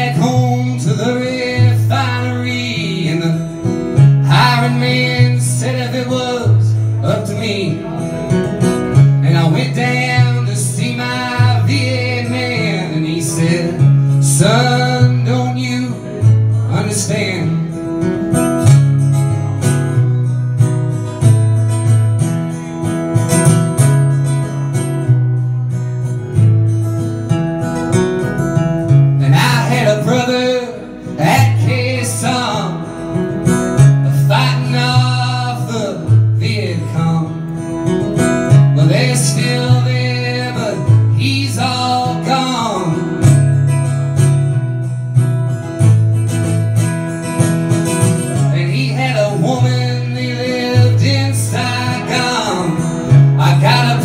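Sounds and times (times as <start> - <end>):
man singing: 0.0 - 18.1, 29.0 - 43.7, 48.1 - 54.0
acoustic guitar strumming: 0.0 - 54.0.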